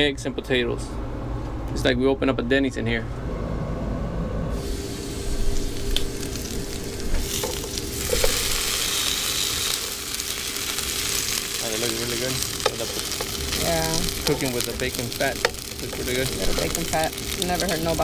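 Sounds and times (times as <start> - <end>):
potatoes and bacon sizzling in a pan: 4.6 - 18.0.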